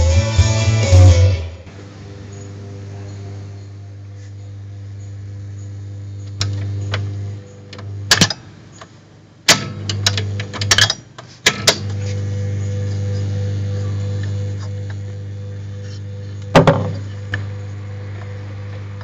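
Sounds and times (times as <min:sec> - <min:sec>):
electrical hum: 0:00.0 - 0:19.0
lever clicks and clunks: 0:07.7 - 0:08.9, 0:09.5 - 0:12.0.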